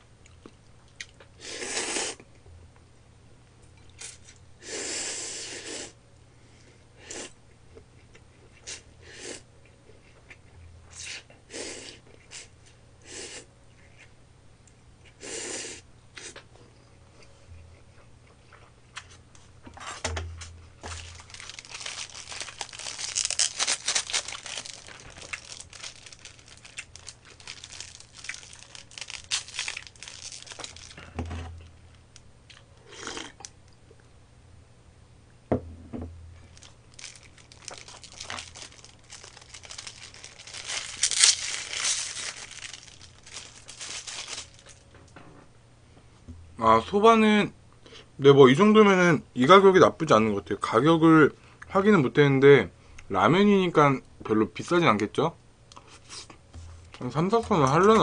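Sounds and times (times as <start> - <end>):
crackly chewing and mouth clicks: 0.2 - 1.4, 21.0 - 31.0.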